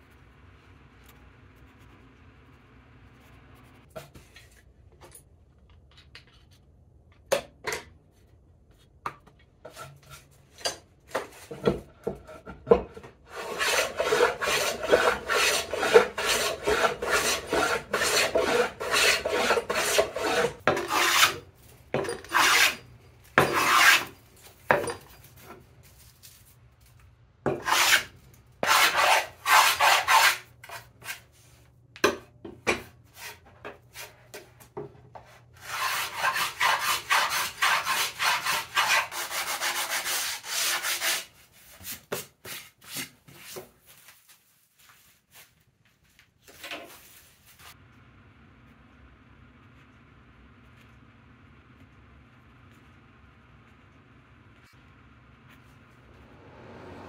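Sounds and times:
hand tool scraping wood: 13.3s - 25.6s, 27.5s - 31.2s, 35.2s - 43.7s.

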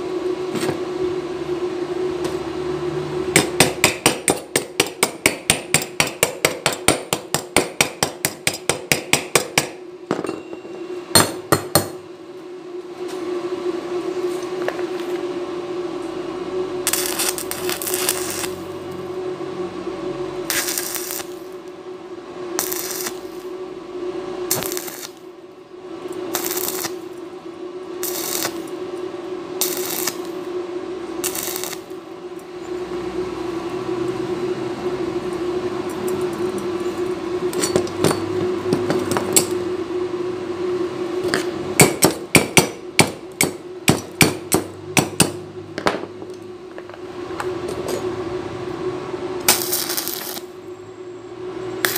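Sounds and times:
steady hum: 0.0s - 51.9s
welding arc crackling: 16.8s - 19.1s, 20.4s - 21.8s, 22.6s - 23.6s, 24.4s - 25.3s, 26.1s - 30.5s, 31.2s - 32.0s, 49.4s - 50.6s.

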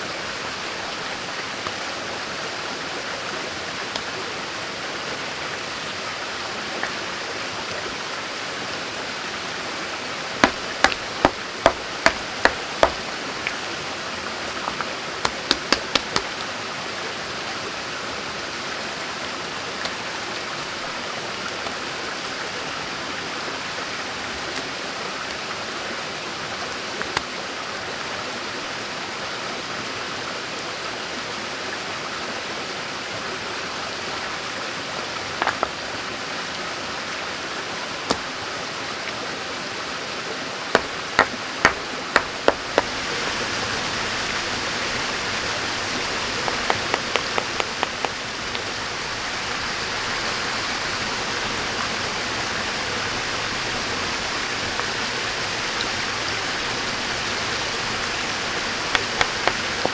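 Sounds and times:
stream running over stones: 0.0s - 59.9s
sharp knocks: 10.4s - 13.0s, 40.8s - 42.9s, 46.4s - 48.1s, 58.9s - 59.9s.

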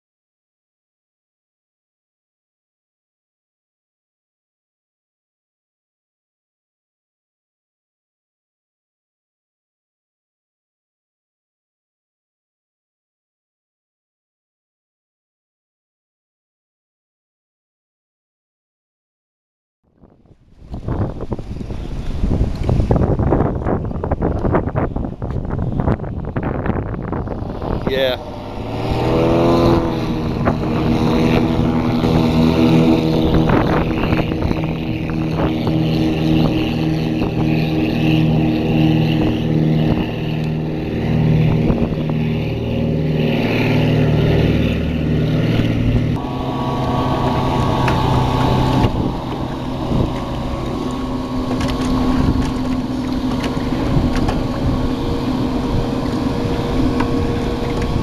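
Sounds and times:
outboard motor running: 20.0s - 58.0s.

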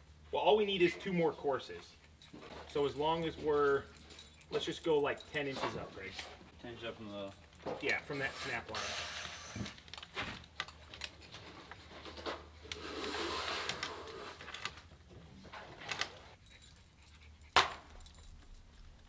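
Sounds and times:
tool belts rattling: 0.1s - 14.9s, 15.5s - 19.0s.

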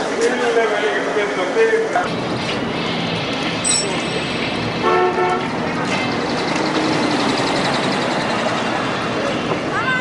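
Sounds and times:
outdoor background noise: 0.0s - 10.0s
vehicle horn blast: 4.8s - 5.5s.

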